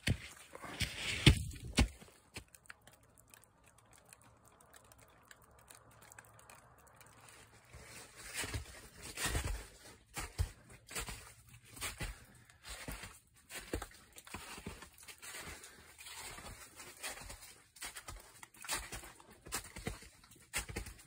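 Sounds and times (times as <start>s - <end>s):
footsteps crunching on snow and leaves: 0.0s - 2.6s, 7.2s - 21.0s.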